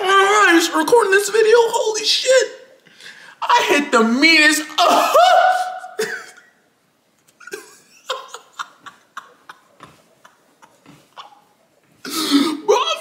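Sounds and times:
man shrieking with laughter: 4.8 - 6.5.

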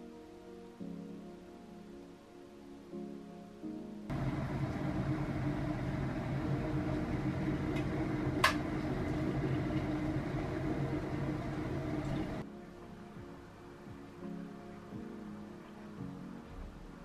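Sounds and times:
kettle water bubbling: 4.1 - 12.4
kettle click: 7.8 - 8.7.

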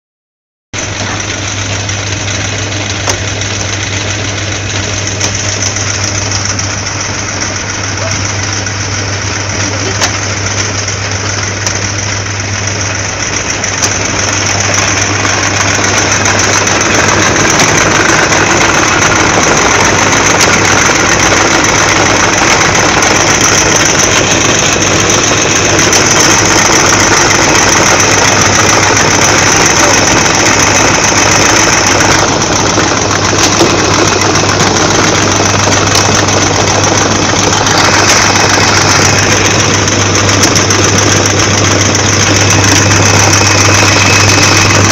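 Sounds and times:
electric fruit chopper humming: 0.8 - 44.9.

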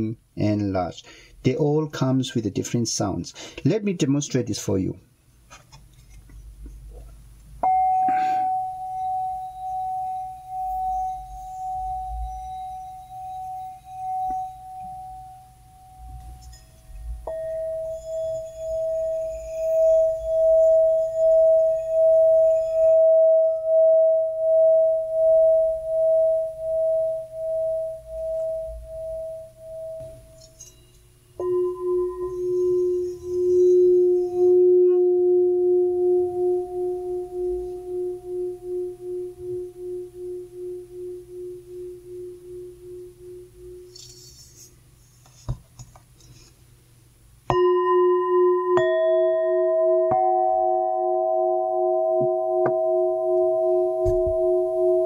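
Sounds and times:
stick tapping bowl: 7.6 - 44.2, 47.5 - 55.0
singing bowls ringing: 7.6 - 44.5, 47.5 - 55.0.

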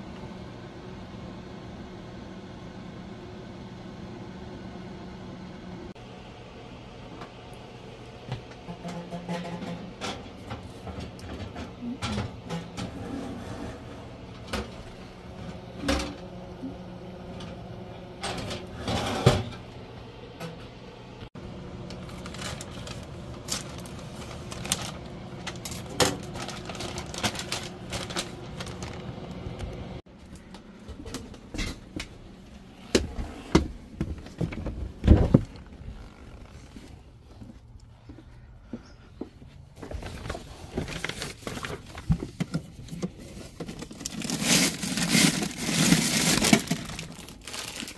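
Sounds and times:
steady low hum: 0.0 - 47.9
scissors snipping plastic bag: 43.8 - 47.9.

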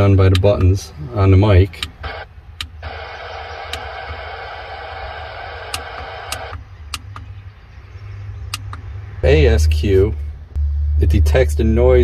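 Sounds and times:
radio static hiss: 2.0 - 6.6.

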